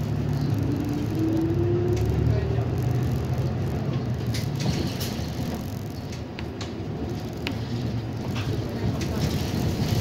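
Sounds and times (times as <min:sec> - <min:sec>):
bus engine hum: 0:00.0 - 0:10.0
bus interior rattles and clicks: 0:00.0 - 0:10.0.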